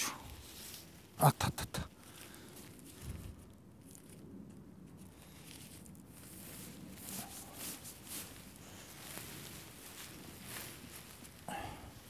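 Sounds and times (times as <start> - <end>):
tent fabric rustling: 5.0 - 12.0.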